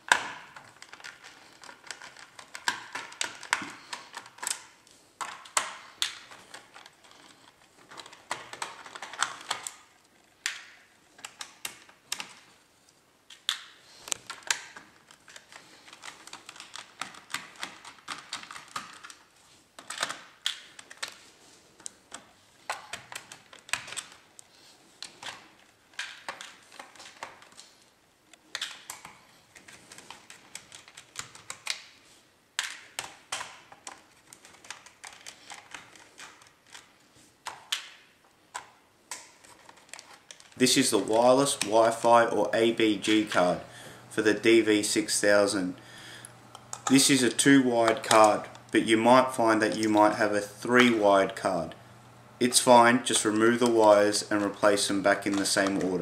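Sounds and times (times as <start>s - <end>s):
fingers clicking and tapping plastic: 0.0s - 9.8s, 10.4s - 12.4s, 13.3s - 19.2s, 21.8s - 24.2s, 28.4s - 31.9s, 32.6s - 40.6s.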